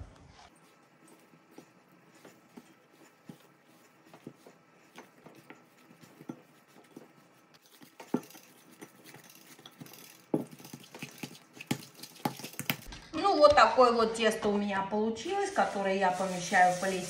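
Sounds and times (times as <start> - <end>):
hands kneading dough: 0.4 - 12.9
dough thumps: 0.7 - 12.9.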